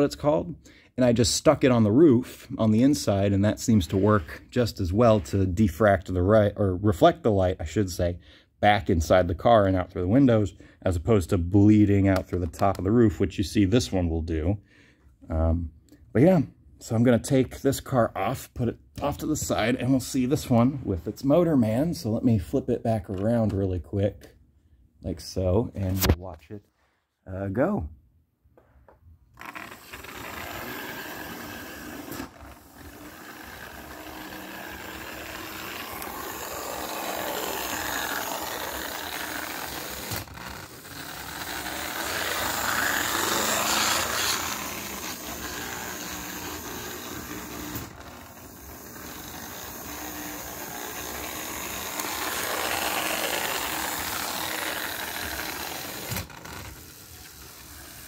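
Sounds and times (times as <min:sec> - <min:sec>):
toy trolley motor whirring: 0:29.4 - 0:58.0.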